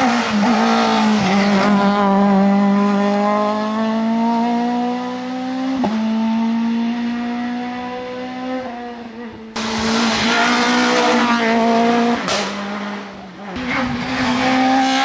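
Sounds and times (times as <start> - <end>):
rally car engine at high revs: 0.0 - 15.0
short crack: 12.2 - 12.6.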